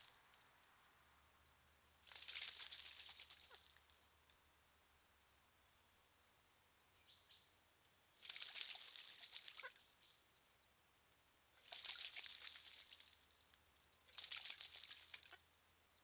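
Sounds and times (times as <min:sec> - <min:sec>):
bird splashing in water: 0:02.0 - 0:04.0, 0:08.2 - 0:09.8, 0:11.6 - 0:13.4, 0:14.1 - 0:15.4.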